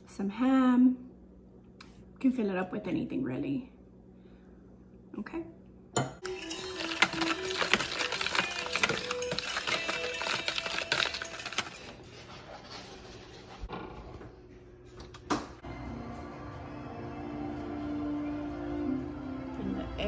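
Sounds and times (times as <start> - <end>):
whisk rattling in plastic bowl: 6.2 - 12.0.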